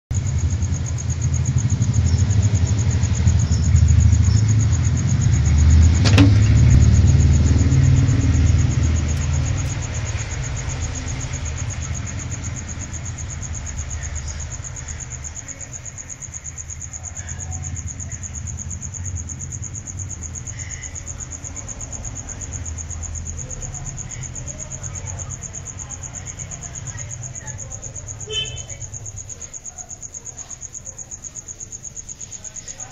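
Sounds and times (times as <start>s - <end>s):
high-pitched insect trill: 0.2s - 32.9s
low rumble: 3.2s - 13.8s
sharp click: 6.0s - 6.8s.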